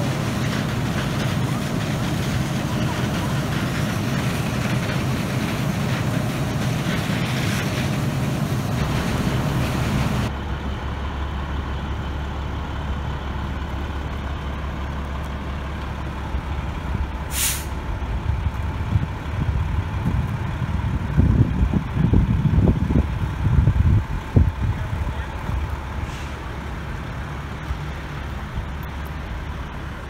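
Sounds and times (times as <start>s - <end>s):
fire hose jetting water: 0.0s - 10.3s, 12.8s - 30.0s
fire engine idling: 0.0s - 30.0s
air brakes hissing: 17.3s - 17.8s, 26.0s - 26.6s.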